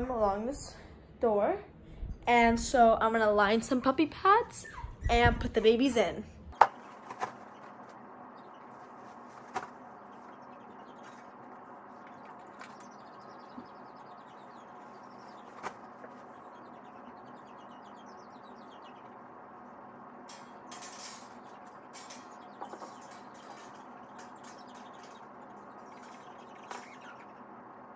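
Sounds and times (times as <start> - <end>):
puppy pads rustling: 8.6 - 10.4.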